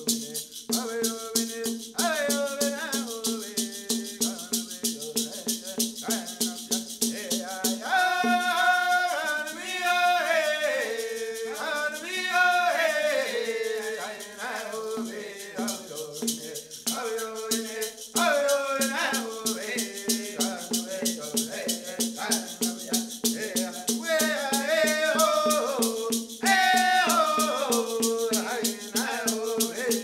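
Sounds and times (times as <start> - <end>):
shaken rattle: 0.0 - 30.0
voices singing together: 0.0 - 30.0.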